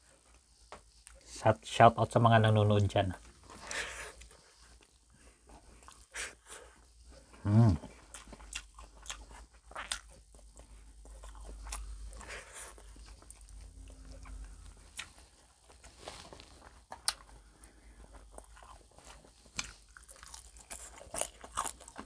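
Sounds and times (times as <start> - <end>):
crunching and chewing: 3.2 - 22.0
short low vocal sound: 7.4 - 7.9.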